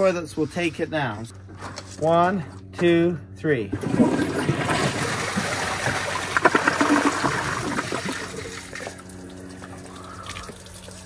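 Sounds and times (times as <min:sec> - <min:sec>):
toilets flushing: 0:03.8 - 0:11.0.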